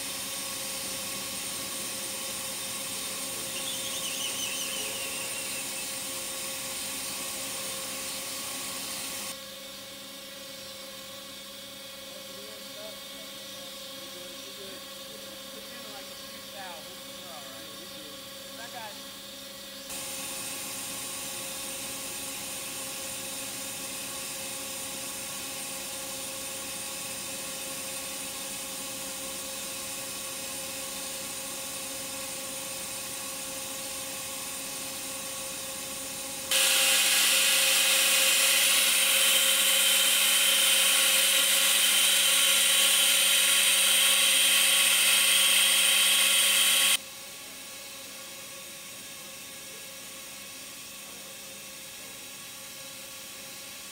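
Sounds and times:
welding machine whine: 0.0s - 53.9s.

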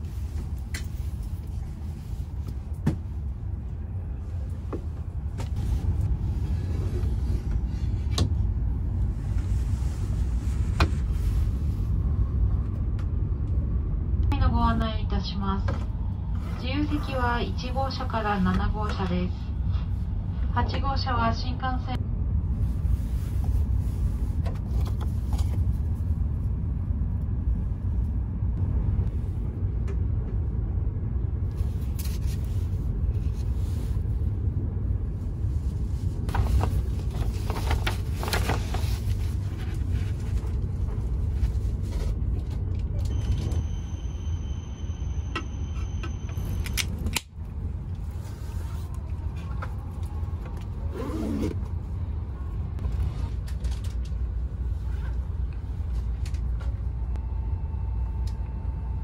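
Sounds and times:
train cabin low rumble: 0.0s - 59.0s
paper pages rustling: 36.3s - 40.5s.

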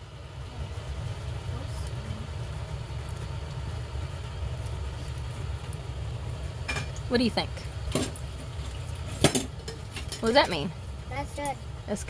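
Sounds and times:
low rumble: 0.0s - 9.2s.

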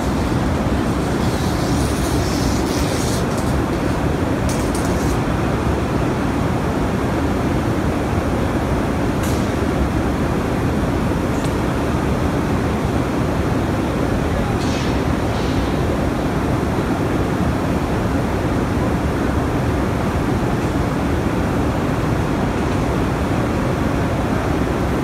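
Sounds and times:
blast furnace low rumble: 0.0s - 11.3s.

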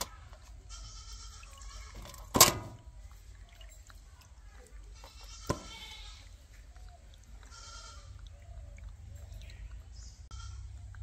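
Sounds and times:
farm animal bleating: 0.1s - 2.3s, 4.8s - 6.7s, 7.3s - 8.4s, 10.2s - 10.9s.

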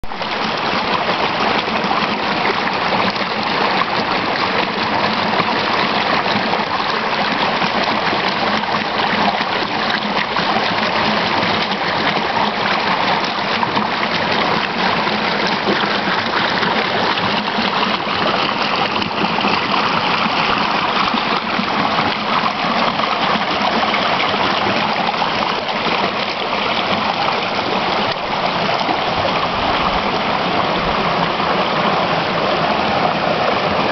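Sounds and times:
creek water over rocks: 0.0s - 33.9s.

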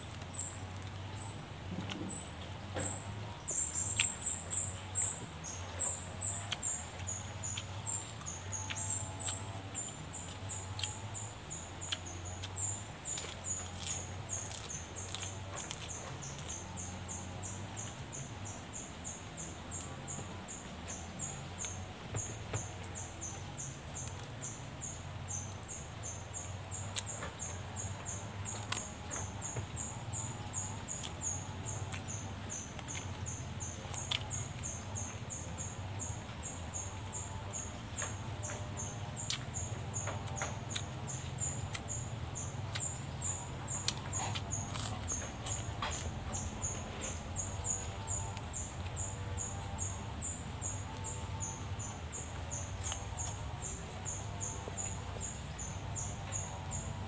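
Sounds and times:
person chewing food: 5.6s - 18.0s, 33.8s - 34.7s, 42.6s - 49.7s, 52.7s - 53.6s.

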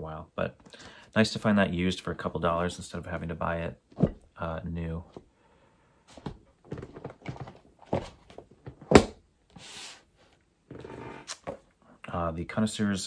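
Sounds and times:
book thunk: 3.9s - 4.2s, 6.2s - 9.2s
books tapping and rustling: 6.1s - 9.2s.

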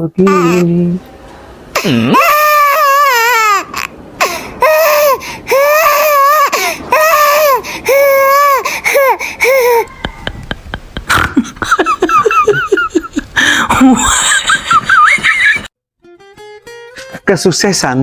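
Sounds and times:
high-pitched voice wailing: 9.6s - 10.5s.

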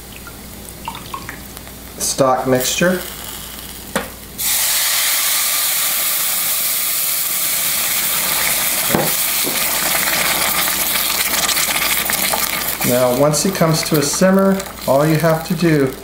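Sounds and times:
liquid sizzling in hot pan: 0.0s - 16.0s
spatula stirring in saucepan: 9.8s - 15.5s.

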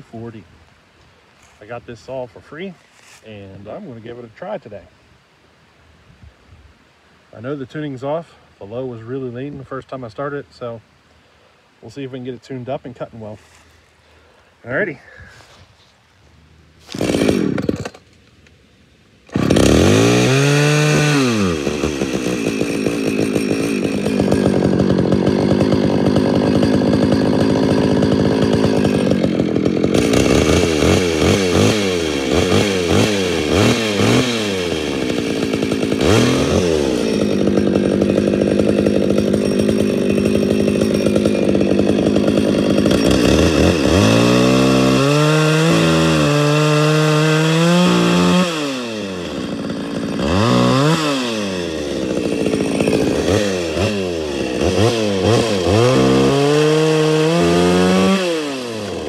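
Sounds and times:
chainsaw cutting a log: 16.8s - 18.1s, 19.3s - 59.0s
chainsaw revving: 16.8s - 18.1s, 19.3s - 59.0s.

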